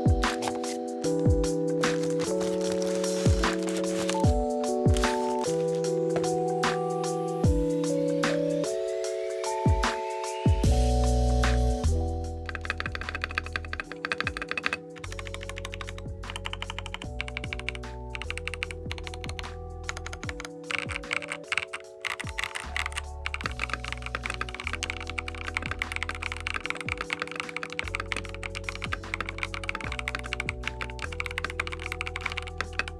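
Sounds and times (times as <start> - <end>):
mechanical keyboard typing: 0.0 - 6.4, 12.3 - 32.9
music with sustained chords and bass: 4.1 - 13.8.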